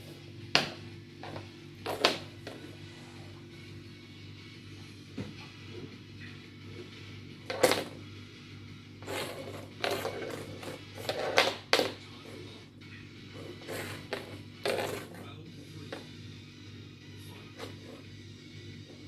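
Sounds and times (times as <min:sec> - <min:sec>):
fidget spinner clattering on wooden floor: 0:00.5 - 0:02.6, 0:07.5 - 0:08.0, 0:09.0 - 0:12.0, 0:13.7 - 0:15.2.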